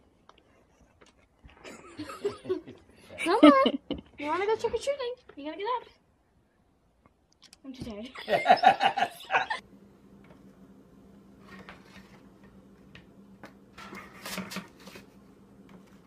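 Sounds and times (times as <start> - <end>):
metal spatula scraping baking sheet: 13.8 - 15.2.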